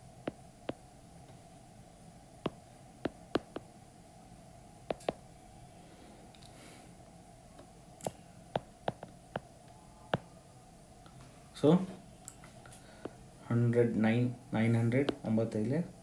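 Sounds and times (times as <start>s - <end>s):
faint steady hum: 0.0s - 16.0s
stylus clicking on tablet screen: 2.5s - 3.7s, 4.9s - 5.2s.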